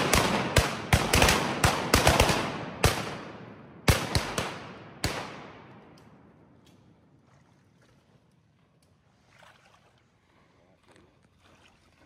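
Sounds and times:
echoing shotgun blasts: 0.0 - 6.3.

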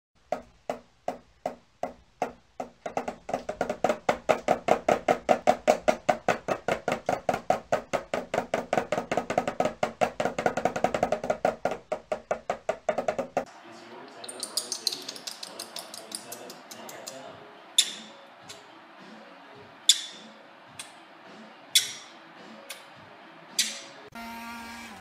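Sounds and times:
toy drum beaten with mallet: 0.3 - 13.5.

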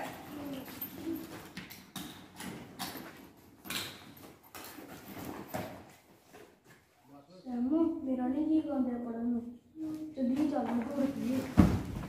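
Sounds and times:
rustling of bags and papers: 0.0 - 7.2, 9.8 - 12.0.

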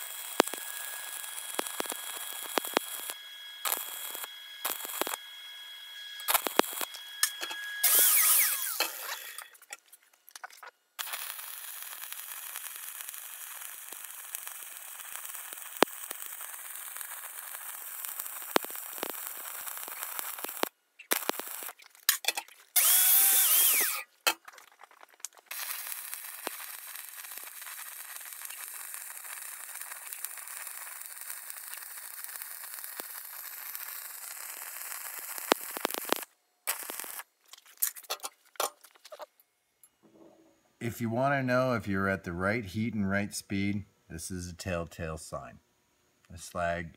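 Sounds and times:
welding arc crackling and hissing: 0.0 - 38.3.

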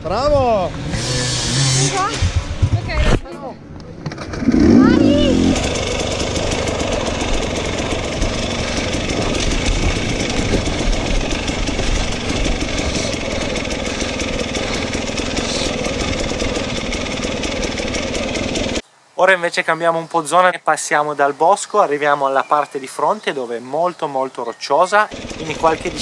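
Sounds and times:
motorcycle engine at low revs: 0.2 - 18.8, 25.1 - 26.0
bike clattering over rough ground: 5.5 - 18.8.

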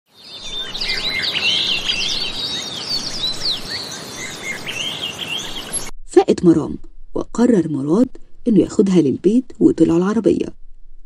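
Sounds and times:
small birds chirping: 0.1 - 5.9.

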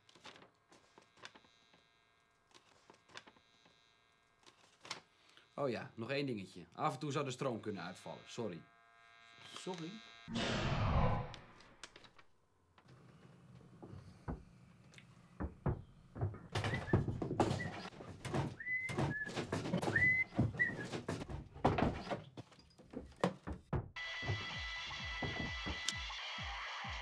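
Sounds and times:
knocks and thumps: 15.4 - 24.4, 25.2 - 25.9
short high squeaks: 18.5 - 21.1.

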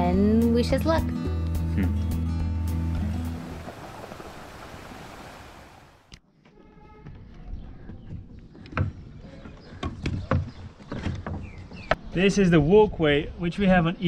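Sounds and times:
footsteps climbing wooden ladder: 6.4 - 12.0.

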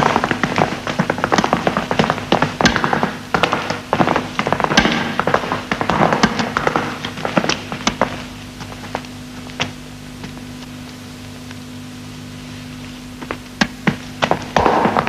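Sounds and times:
footsteps on hard floor: 0.0 - 11.0, 12.8 - 15.0
steady low hum: 0.0 - 15.0.

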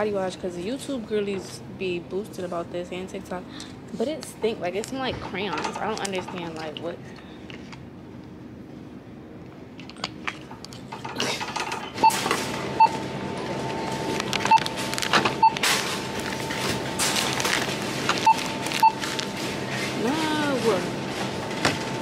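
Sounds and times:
barcode scanner beeps: 12.0 - 12.2, 12.8 - 13.0, 14.4 - 14.8, 15.4 - 15.7, 18.2 - 19.2
packages and plastic bags rustling: 13.4 - 22.0.

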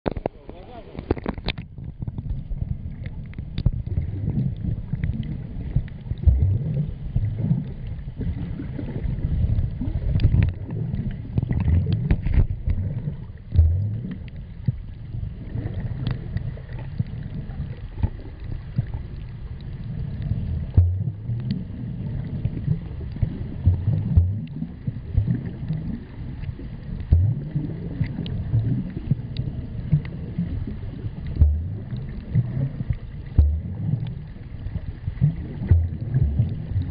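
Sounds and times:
faint clicks: 0.1 - 6.4, 10.1 - 12.8, 15.9 - 20.8
underwater water rumble: 0.1 - 36.9.

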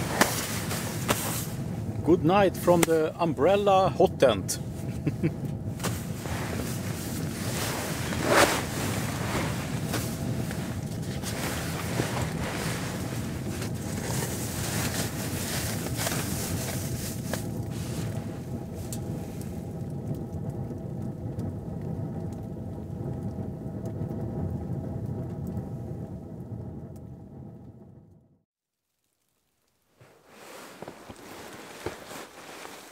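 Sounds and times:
sleeping bag rustling: 0.0 - 1.9, 4.8 - 19.6, 29.9 - 32.9
steady low rumble: 0.0 - 28.4.

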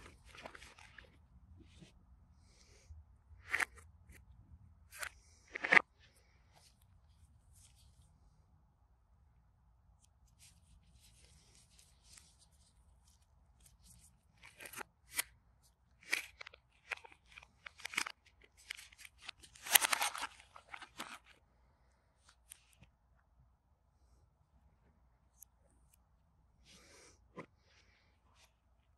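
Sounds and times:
crinkly rustles: 16.0 - 21.4.

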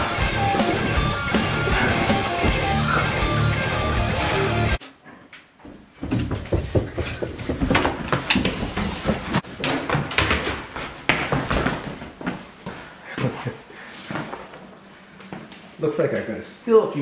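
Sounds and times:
footsteps and knocks: 0.0 - 3.6, 5.3 - 13.5.

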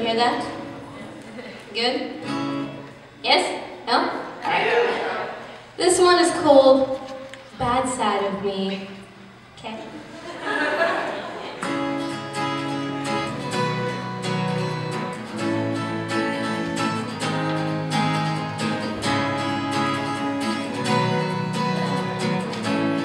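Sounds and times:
acoustic guitar strumming chords: 2.2 - 3.0, 11.6 - 23.0.

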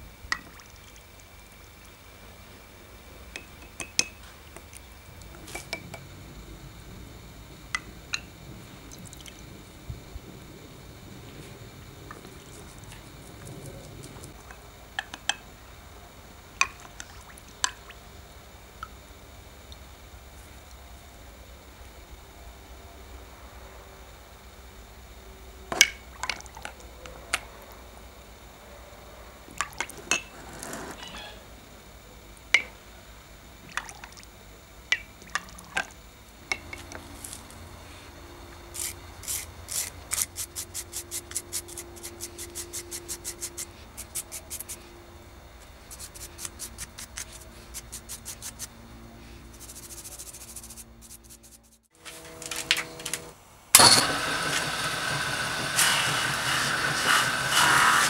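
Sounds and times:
buffing wheel motor running: 52.0 - 58.0.

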